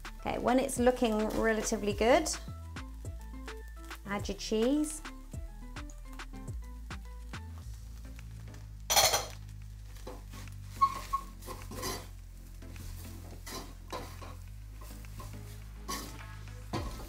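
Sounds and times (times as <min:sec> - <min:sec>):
wooden spoon scraping a saucepan: 0:10.0 - 0:12.2, 0:12.9 - 0:17.0.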